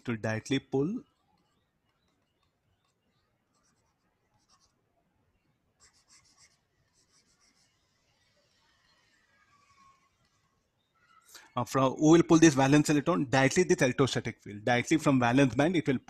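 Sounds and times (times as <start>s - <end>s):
stylus scratching on tablet: 1.0s - 4.9s, 5.7s - 10.8s.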